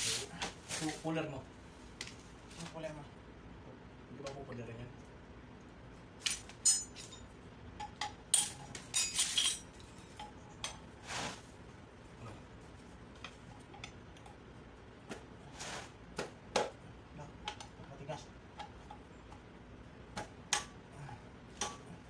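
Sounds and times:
metal tools clinking: 6.3s - 10.7s.

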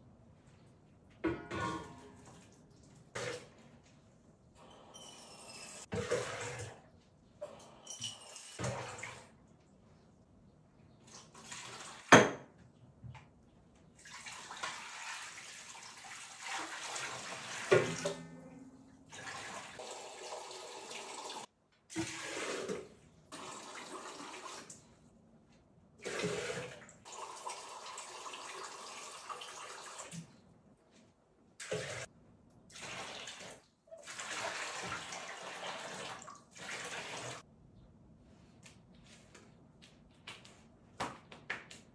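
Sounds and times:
water pouring into metal basin: 14.0s - 24.7s.

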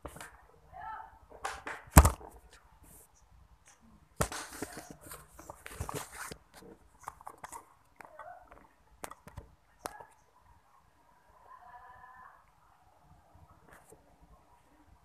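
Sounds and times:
rubbing and scraping on microphone: 4.2s - 10.2s.

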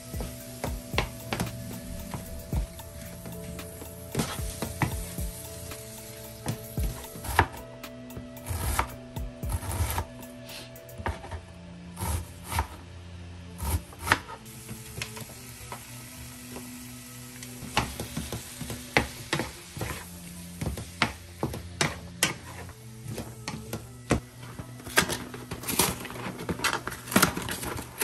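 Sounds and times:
meat and onion sizzling in a pan: 0.0s - 7.6s, 14.4s - 24.6s.

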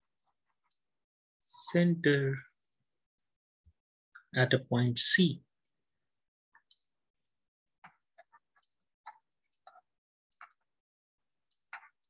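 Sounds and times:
stylus tapping on pen tablet: 7.8s - 10.7s, 11.5s - 12.0s.

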